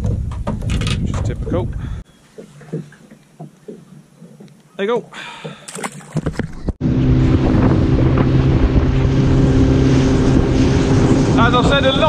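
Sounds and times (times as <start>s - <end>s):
wind on microphone: 0.0s - 2.0s, 6.1s - 12.0s
motorboat engine running: 2.3s - 12.0s.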